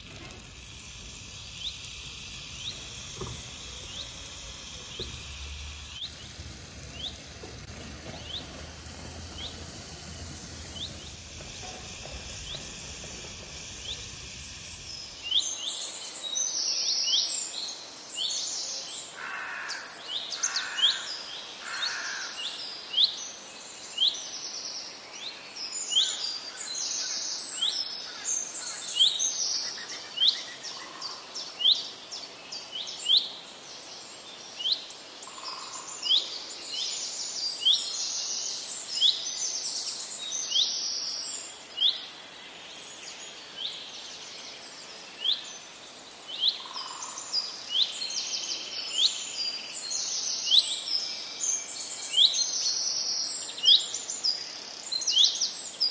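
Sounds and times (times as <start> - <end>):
low steady rumble: 0.0 - 15.4
busy mix of bird calls: 0.0 - 15.7
birds chirping: 0.0 - 16.0.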